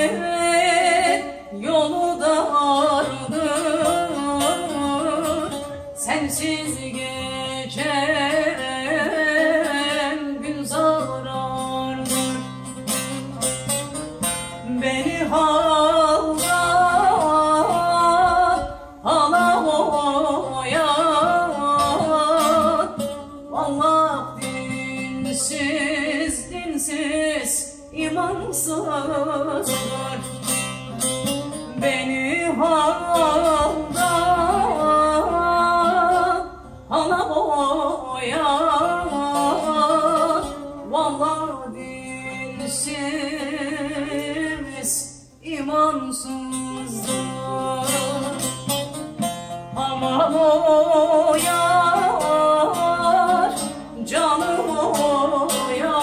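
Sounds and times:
woman singing melismatically: 0.0 - 13.4, 14.5 - 56.0
long-necked lute strummed and plucked: 0.0 - 56.0.

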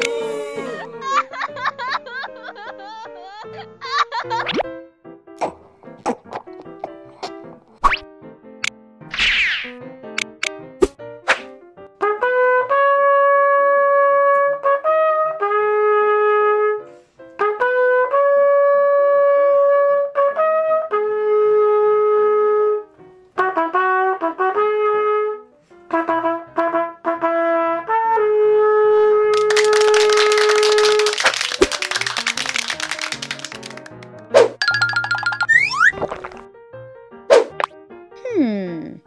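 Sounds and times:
trumpet playing slow tune: 12.0 - 16.8, 17.4 - 29.4.

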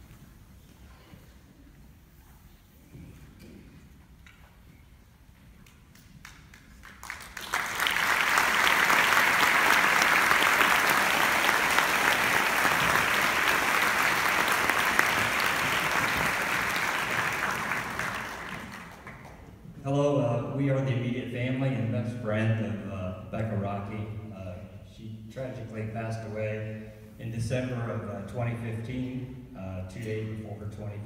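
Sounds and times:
audience applauding: 5.9 - 19.6.

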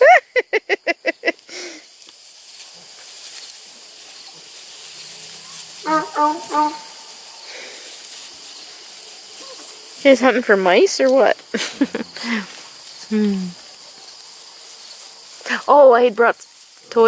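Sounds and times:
person laughing: 0.0 - 1.8, 11.5 - 12.5
crickets and insects hissing: 0.0 - 17.0
short voiced sounds: 5.8 - 7.1.

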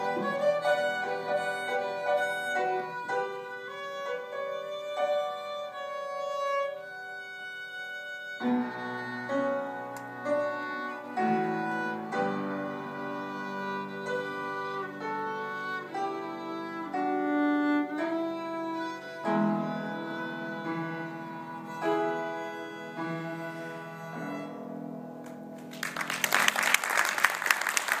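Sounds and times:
violin playing slow melody: 0.0 - 25.3
piano accompaniment: 0.0 - 28.0
audience applause: 25.6 - 28.0.

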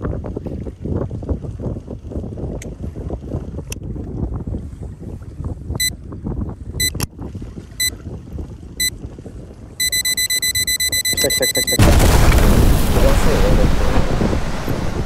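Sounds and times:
wind buffeting microphone: 0.0 - 9.9, 11.8 - 15.0
electronic beeps: 9.8 - 11.9.

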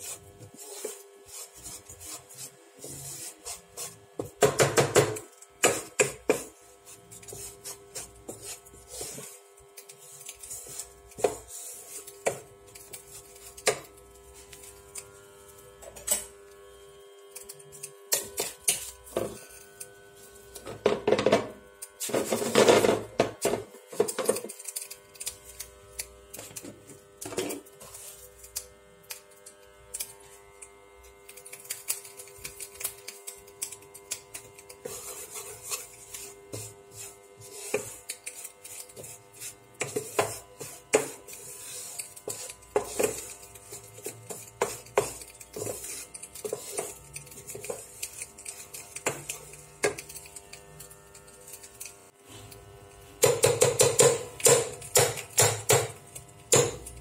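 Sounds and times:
wooden spatula scraping frying pan: 0.0 - 4.6, 5.6 - 13.8, 34.8 - 49.5.

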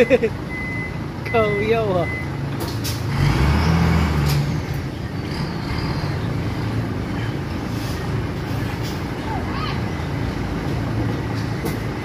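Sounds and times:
diesel truck engine running: 0.0 - 12.0.

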